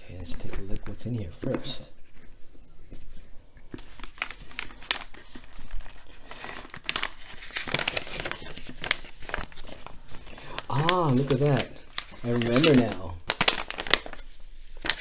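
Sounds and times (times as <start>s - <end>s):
plastic sleeve crinkling: 3.7s - 15.0s.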